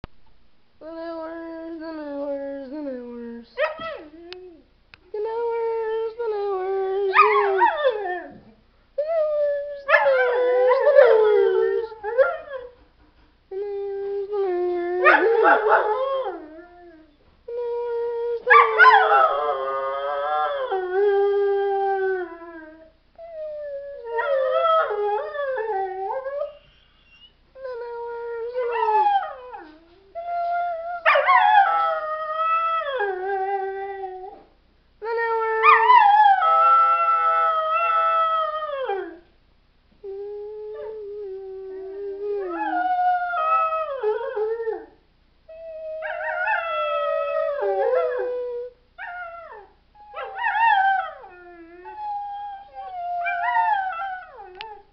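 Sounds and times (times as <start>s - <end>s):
dog howling: 6.8s - 8.5s, 9.6s - 12.7s, 14.4s - 16.9s, 18.4s - 21.1s, 41.6s - 44.9s, 45.8s - 54.8s.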